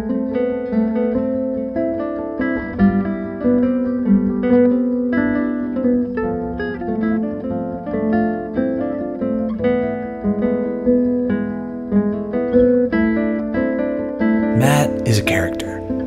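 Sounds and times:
acoustic guitar picking: 0:14.6 - 0:16.0.

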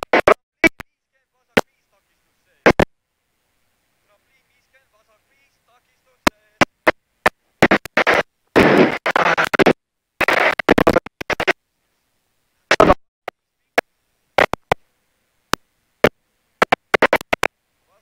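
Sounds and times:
harsh choppy noise bursts: 0:06.3 - 0:11.6, 0:12.7 - 0:13.0, 0:16.6 - 0:17.5.

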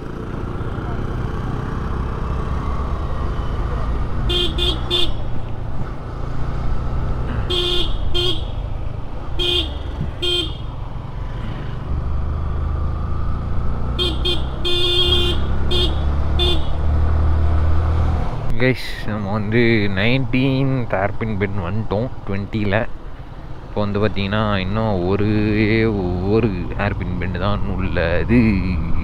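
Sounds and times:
motorcycle engine rumble: 0:00.0 - 0:29.0
wind: 0:00.0 - 0:29.0
vehicle horn short toots: 0:04.3 - 0:05.2, 0:07.3 - 0:08.6, 0:09.4 - 0:10.7, 0:14.0 - 0:16.8.

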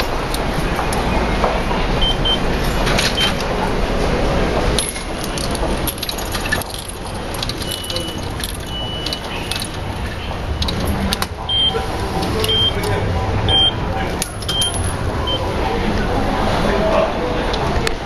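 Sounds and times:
steady background noise: 0:00.0 - 0:18.0
coins clicking and rattling: 0:04.8 - 0:11.2, 0:14.2 - 0:15.0
steady high beep: 0:11.4 - 0:15.5
short electronic beeps: 0:11.5 - 0:12.8, 0:13.5 - 0:13.8.

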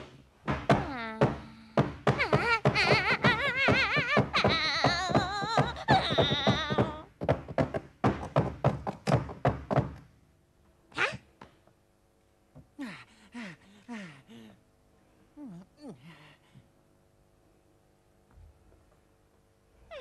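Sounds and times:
cartoon knocks and thuds: 0:00.0 - 0:10.0.

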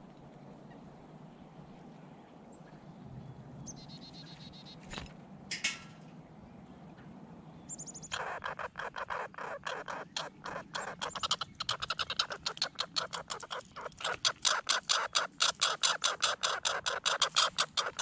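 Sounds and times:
songbird trilling: 0:03.6 - 0:04.8, 0:07.7 - 0:18.0
squirrel chattering: 0:08.0 - 0:18.0.

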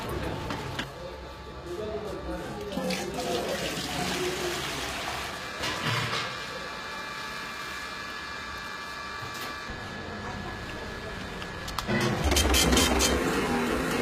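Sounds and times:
receipt printer buzzing: 0:07.0 - 0:14.0.

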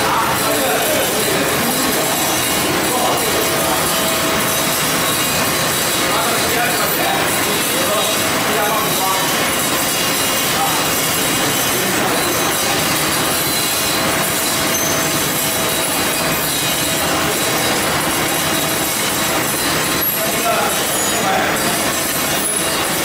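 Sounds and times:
conveyor machinery rattling: 0:00.0 - 0:23.0.

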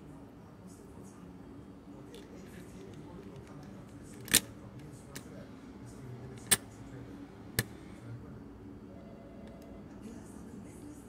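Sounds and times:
lock mechanism clicking: 0:03.2 - 0:05.3, 0:06.3 - 0:06.6.

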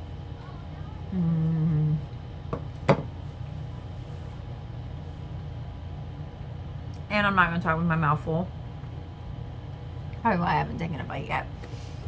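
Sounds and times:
woman humming mmm: 0:01.1 - 0:02.2.

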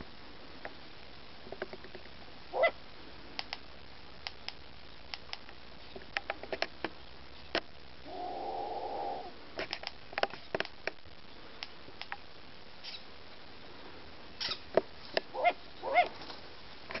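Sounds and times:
owl bill snaps: 0:03.4 - 0:03.6
owl drawn-out call: 0:08.0 - 0:09.4
owl short loud calls: 0:08.0 - 0:09.4.

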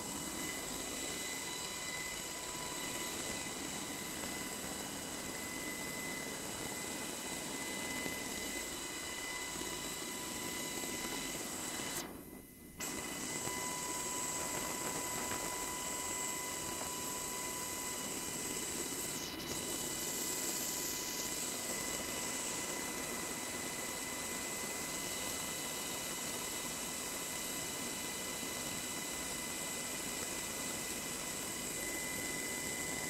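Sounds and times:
helicopter engine rush: 0:00.0 - 0:12.0
high steady whines: 0:00.0 - 0:33.0.

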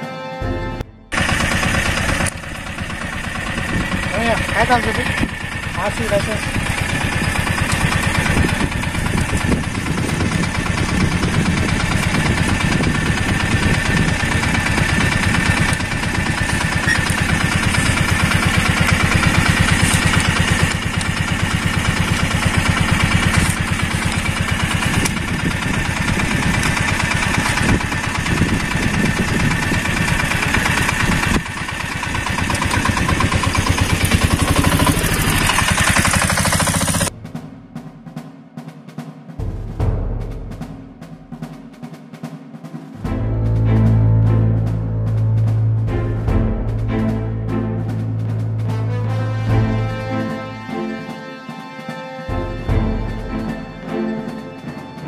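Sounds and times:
auto-rickshaw engine idling: 0:01.1 - 0:37.1.

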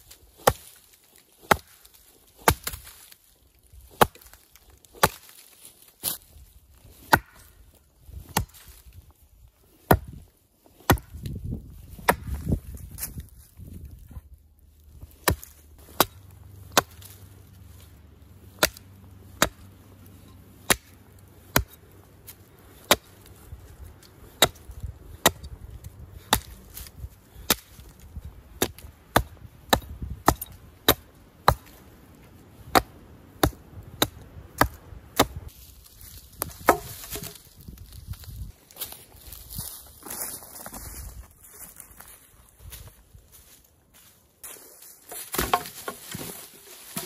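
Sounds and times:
axe chopping wood: 0:00.3 - 0:03.1, 0:03.9 - 0:06.2, 0:06.9 - 0:07.6, 0:08.2 - 0:08.8, 0:09.8 - 0:10.2, 0:10.8 - 0:12.6, 0:15.0 - 0:35.5, 0:36.3 - 0:37.5, 0:45.1 - 0:47.0.

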